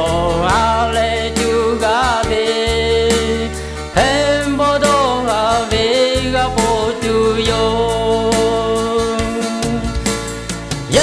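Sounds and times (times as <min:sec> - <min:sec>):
man singing: 0:00.0 - 0:10.1
instrumental backing track: 0:00.0 - 0:11.0.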